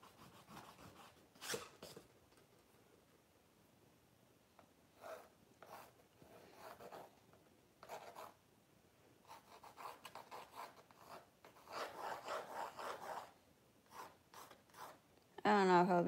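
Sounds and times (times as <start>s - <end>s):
pencil sketching on canvas: 0.0s - 1.2s, 5.0s - 7.1s, 7.8s - 8.4s, 9.3s - 15.0s.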